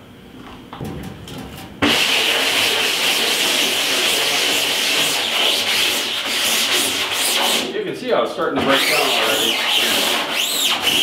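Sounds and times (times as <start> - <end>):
scrub brush rubbing on mesh: 8.7 - 11.0.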